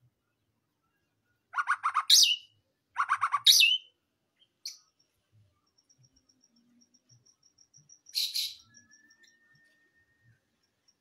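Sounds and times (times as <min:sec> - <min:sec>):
bird singing with falling whistle: 0:08.1 - 0:10.2.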